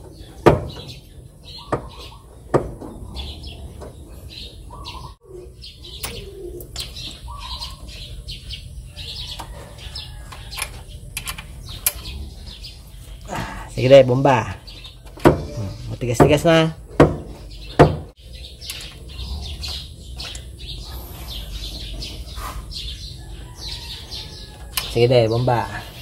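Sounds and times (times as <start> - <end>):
birds chirping and cooing: 0.0 - 26.0.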